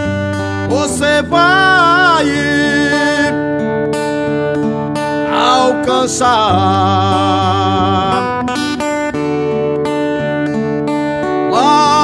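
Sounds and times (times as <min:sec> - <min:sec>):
strummed acoustic guitar: 0:00.0 - 0:12.0
person singing a hymn: 0:00.7 - 0:03.4, 0:05.3 - 0:08.6, 0:11.4 - 0:12.0.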